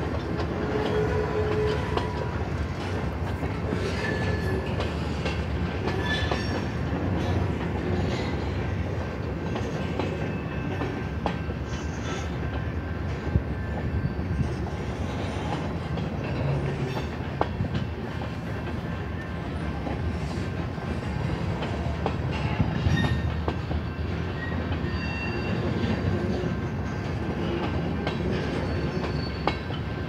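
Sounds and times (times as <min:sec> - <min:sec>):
train rumbling: 0:00.0 - 0:30.0
faint wheel squeals: 0:24.4 - 0:25.6, 0:28.6 - 0:29.6.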